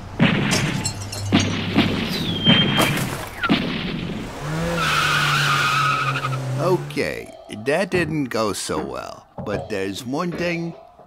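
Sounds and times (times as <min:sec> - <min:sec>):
gunshots: 0:00.2 - 0:04.4.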